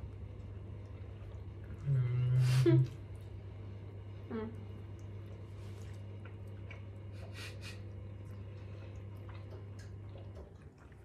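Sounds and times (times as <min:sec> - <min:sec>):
steady low hum: 0:00.0 - 0:11.0
people chewing crunchy pizza: 0:04.8 - 0:11.0.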